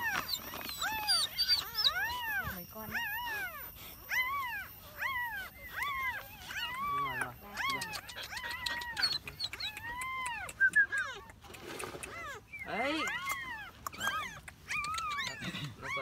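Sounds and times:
dog whining: 0.0 - 16.0
short high squeaks: 0.0 - 16.0.

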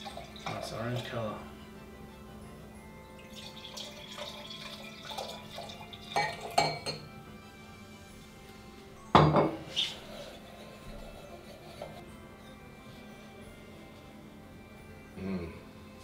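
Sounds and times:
glasses clinking: 0.0 - 1.2, 3.1 - 7.2, 9.1 - 10.0
wine pouring into glasses: 0.0 - 1.2, 3.1 - 7.0
knock on counter: 9.2 - 9.6.

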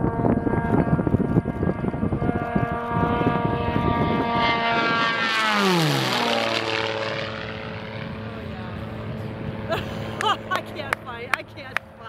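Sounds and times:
propeller airplane passing: 0.0 - 12.0.

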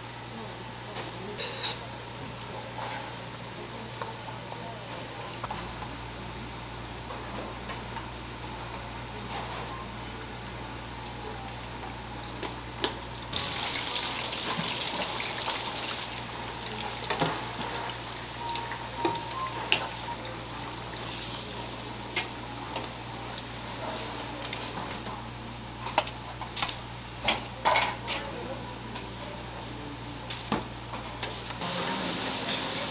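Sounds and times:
oil bubbling and sizzling: 10.2 - 24.9, 31.6 - 32.9.

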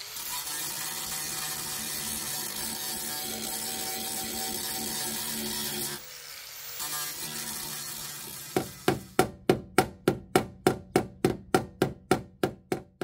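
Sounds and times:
angle grinder grinding steel: 0.0 - 9.2.

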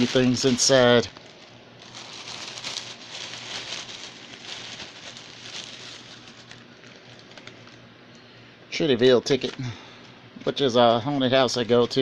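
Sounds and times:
plastic bag crinkling: 0.0 - 7.9.

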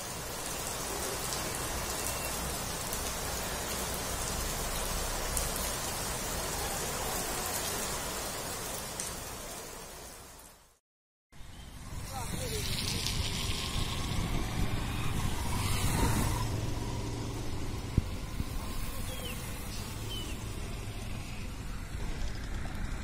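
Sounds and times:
heavy rain falling on water: 0.0 - 10.8, 12.1 - 15.5.

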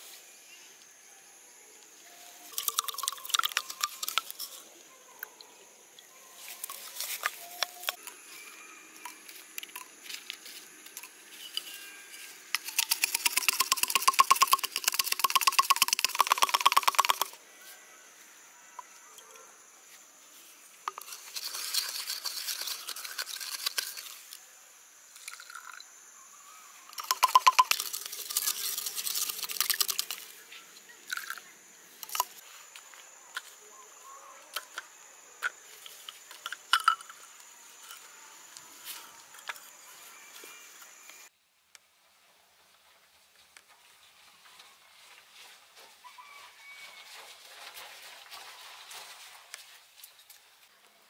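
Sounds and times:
pestle pounding in bamboo tube: 12.7 - 17.3.

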